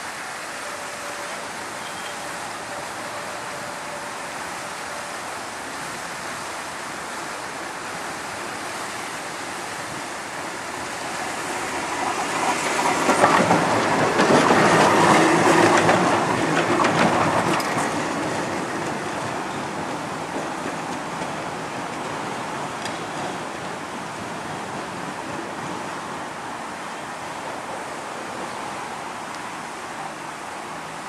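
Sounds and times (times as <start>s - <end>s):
tram wheels clicking on rails: 9.9s - 26.2s.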